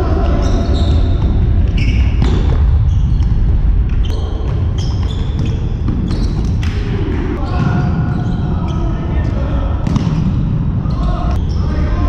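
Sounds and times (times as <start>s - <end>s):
low rumble of hall: 0.0s - 12.0s
shoes squeaking on wooden floor: 4.0s - 6.6s.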